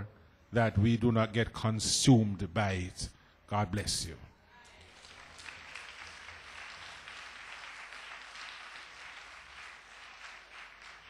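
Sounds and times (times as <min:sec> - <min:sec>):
crowd clapping: 0:04.6 - 0:11.0.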